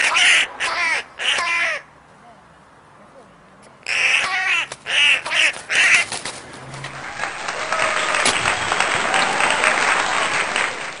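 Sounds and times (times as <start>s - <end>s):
crow cawing: 0.0s - 1.9s, 3.8s - 6.2s.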